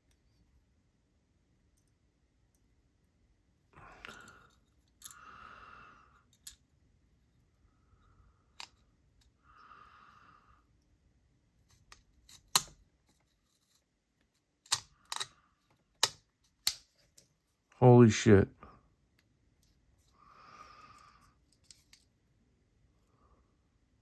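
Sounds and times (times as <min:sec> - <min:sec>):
small metal parts clicking: 0:04.0 - 0:05.2, 0:06.2 - 0:06.6, 0:14.6 - 0:15.4.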